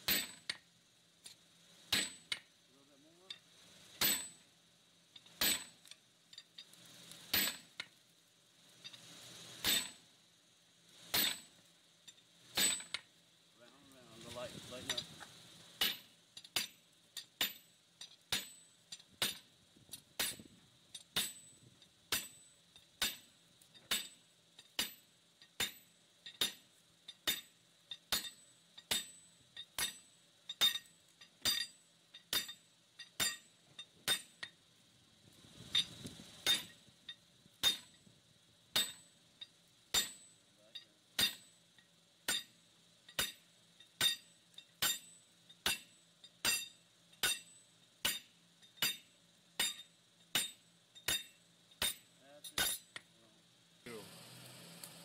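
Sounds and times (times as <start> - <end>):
hammer striking metal on anvil: 0.0 - 0.6, 1.9 - 2.4, 4.0 - 4.4, 5.4 - 5.8, 7.3 - 7.7, 9.6 - 10.0, 11.1 - 11.5, 12.6 - 13.0, 15.8 - 17.7, 18.3 - 19.5, 20.2 - 20.4, 21.0 - 21.5, 22.1 - 24.2, 24.8 - 26.6, 27.2 - 29.2, 29.8 - 34.5, 35.8 - 36.8, 37.6 - 38.0, 38.7 - 39.1, 39.9 - 41.5, 42.3 - 42.5, 43.1 - 43.4, 44.0 - 53.0.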